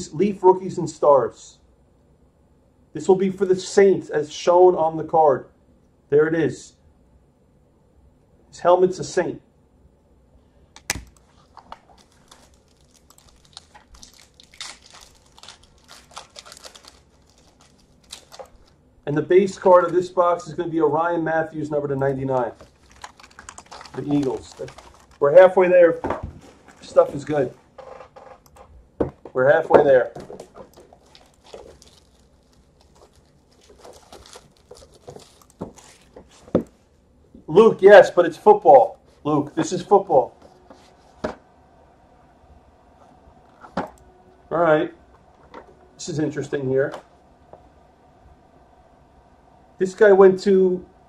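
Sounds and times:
foil wrapper crinkling: 11.1s - 18.8s, 22.0s - 25.7s, 26.4s - 27.5s, 30.1s - 36.6s.

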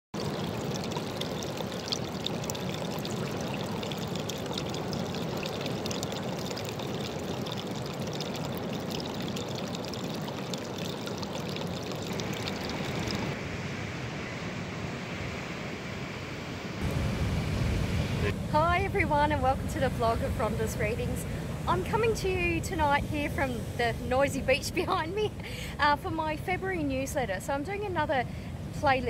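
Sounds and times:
water trickling into rock pool: 0.2s - 13.4s.

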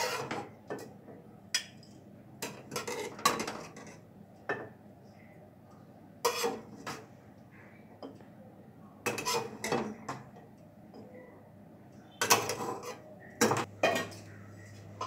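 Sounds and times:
metal spatula scraping a wok: 0.0s - 0.4s, 6.2s - 7.0s, 9.1s - 9.7s.

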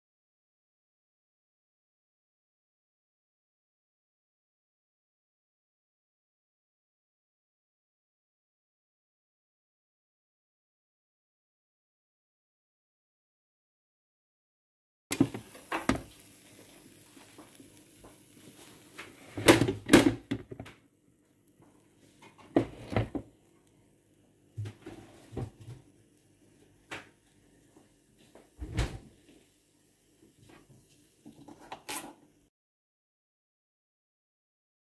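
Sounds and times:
cookware and utensils clanking: 31.3s - 32.2s.

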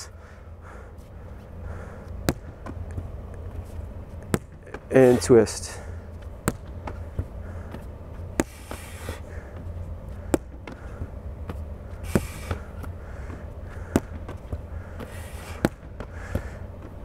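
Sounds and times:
steady low hum: 0.0s - 17.0s
ball thudding against padded wall: 2.2s - 3.0s, 4.3s - 4.9s, 6.4s - 7.3s, 10.3s - 10.8s, 13.8s - 16.9s.

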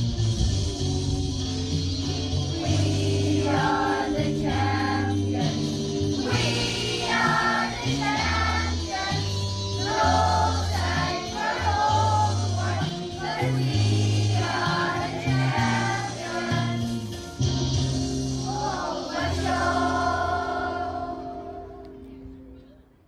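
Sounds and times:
backing track with bass notes: 0.0s - 22.8s
children singing together: 2.6s - 17.0s, 18.4s - 21.7s.

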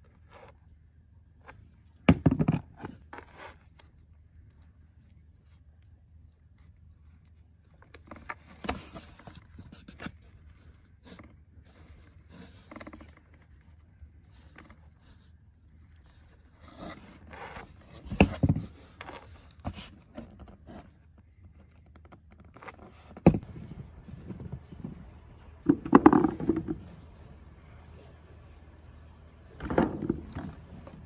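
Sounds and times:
plums moved in plastic bowl: 22.6s - 27.3s, 29.5s - 31.0s.

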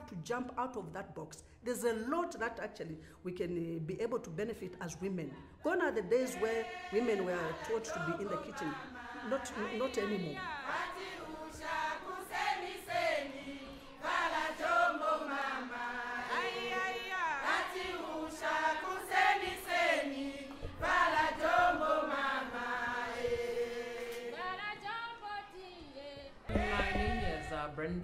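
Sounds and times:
choir singing: 6.1s - 28.0s.

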